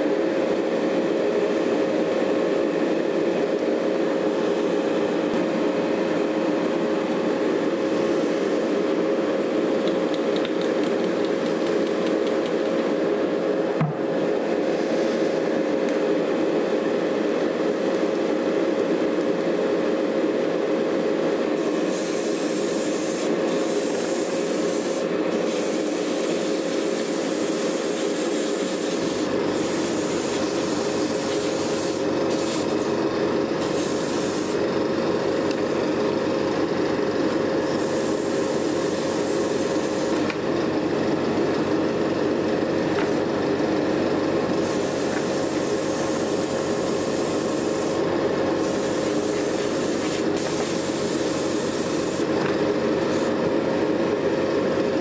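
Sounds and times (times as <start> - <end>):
paint spray hissing: 21.6 - 32.8, 33.6 - 34.6, 37.6 - 40.2, 44.5 - 48.0, 48.6 - 52.3.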